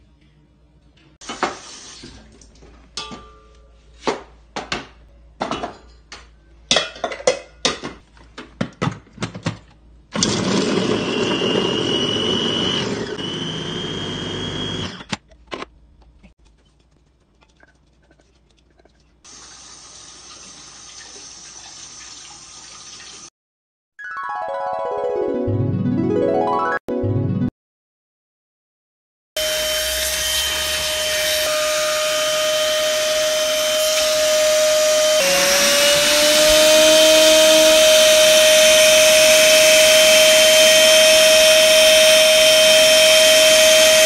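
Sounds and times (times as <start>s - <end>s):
tap running water into sink: 1.2s - 2.6s, 19.3s - 23.3s
electric chopper motor whining: 10.2s - 15.1s, 31.4s - 44.0s.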